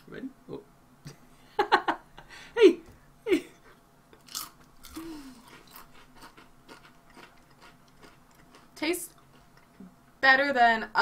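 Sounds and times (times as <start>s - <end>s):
crunching potato chips: 4.2s - 9.7s
chewing crackling: 4.2s - 9.9s.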